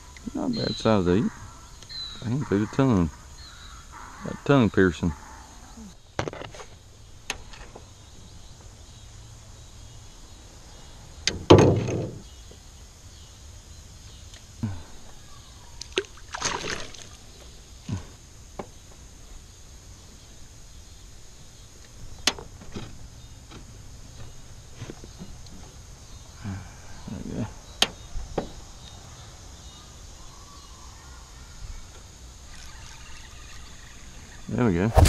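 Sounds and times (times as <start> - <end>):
heavy thump: 11.4 - 12.2.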